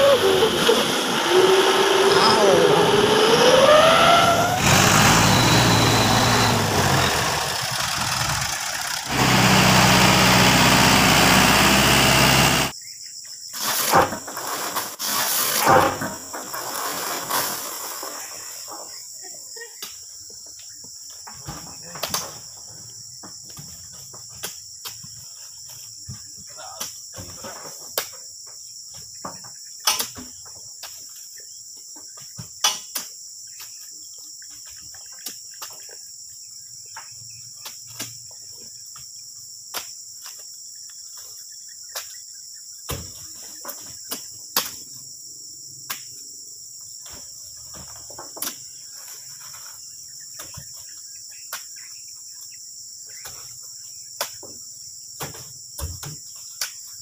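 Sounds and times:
high-pitched insect chorus: 0:12.7 - 0:57.0.

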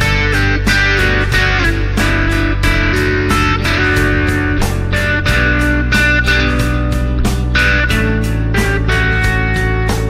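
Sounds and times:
strummed guitar music: 0:00.0 - 0:10.0.

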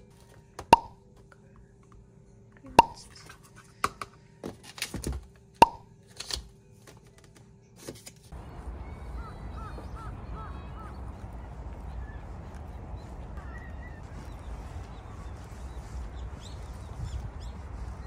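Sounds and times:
outdoor background noise: 0:00.0 - 0:18.0
faint hum: 0:08.3 - 0:18.0
bird calls: 0:08.4 - 0:18.0.

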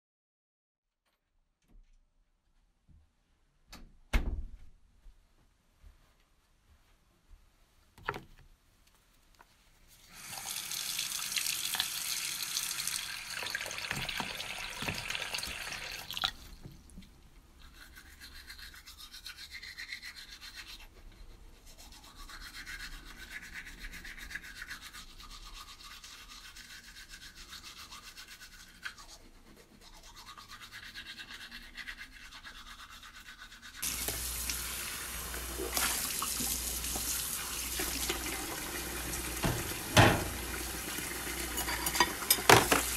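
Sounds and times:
tap running water into sink: 0:10.3 - 0:16.3, 0:33.8 - 0:42.9
toothbrush scrubbing teeth: 0:12.8 - 0:39.6.

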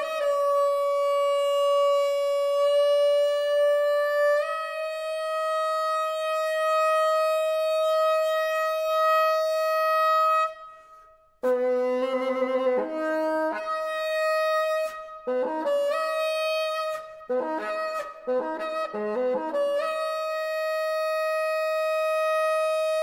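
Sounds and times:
bassoon playing: 0:11.4 - 0:23.0.

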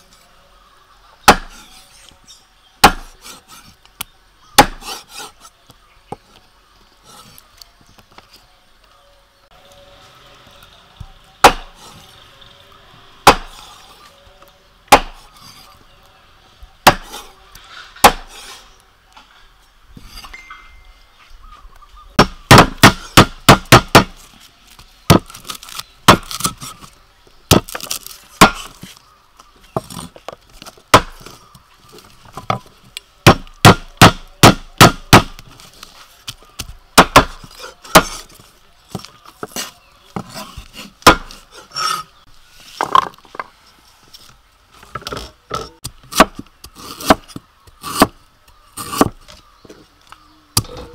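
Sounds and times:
cleaver chopping on wooden block: 0:01.2 - 0:01.6, 0:02.8 - 0:03.2, 0:04.6 - 0:05.0, 0:11.4 - 0:11.8, 0:13.2 - 0:13.6, 0:14.9 - 0:15.2, 0:16.8 - 0:17.2, 0:18.0 - 0:18.3, 0:22.2 - 0:24.2, 0:26.1 - 0:26.6, 0:27.5 - 0:28.7, 0:30.9 - 0:31.3, 0:33.2 - 0:35.4, 0:37.0 - 0:38.2, 0:40.2 - 0:42.0, 0:46.1 - 0:48.2.

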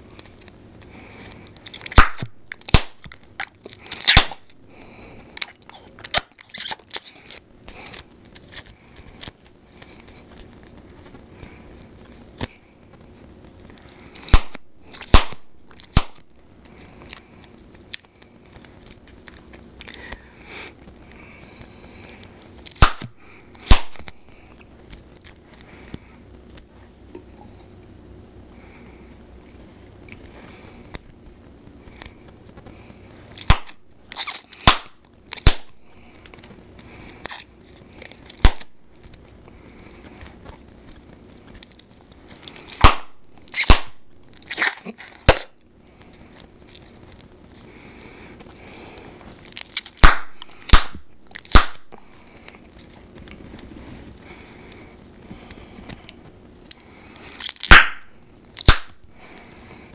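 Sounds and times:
bubblegum popping: 0:01.9 - 0:04.4, 0:57.6 - 0:58.0.

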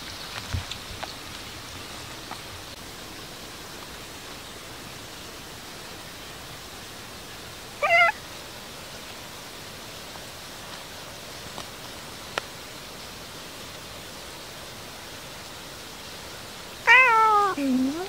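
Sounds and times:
cat meowing: 0:07.8 - 0:08.2, 0:16.9 - 0:18.0.

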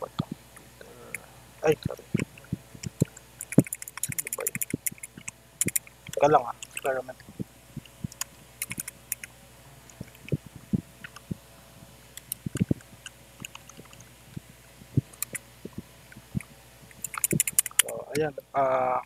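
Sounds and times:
computer keyboard keystrokes: 0:02.9 - 0:06.9, 0:08.1 - 0:09.3, 0:12.2 - 0:14.0, 0:15.1 - 0:15.4, 0:17.0 - 0:17.9.

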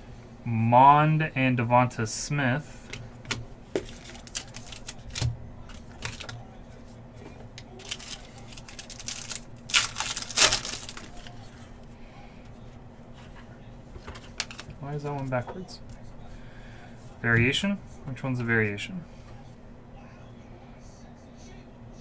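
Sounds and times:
foil card pack rustling: 0:03.8 - 0:06.4, 0:07.7 - 0:11.4, 0:14.2 - 0:14.8
wrapper crinkling: 0:03.8 - 0:06.4, 0:07.8 - 0:11.4, 0:14.3 - 0:14.7.

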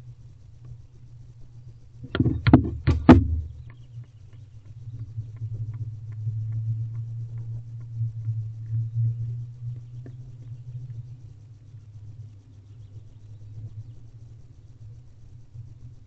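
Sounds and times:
steady low hum: 0:00.0 - 0:16.0
knocks and scrapes in wooden box: 0:02.0 - 0:03.6.

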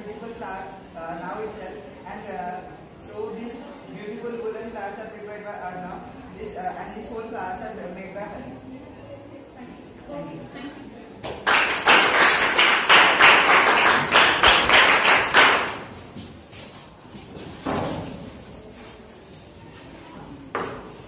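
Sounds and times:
group applauding: 0:11.2 - 0:16.0.

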